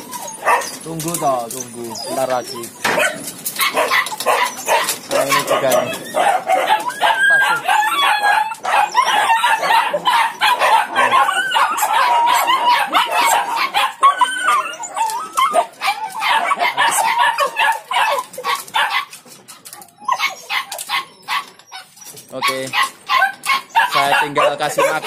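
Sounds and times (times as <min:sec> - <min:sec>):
dogs barking and whining: 0:00.0 - 0:25.0.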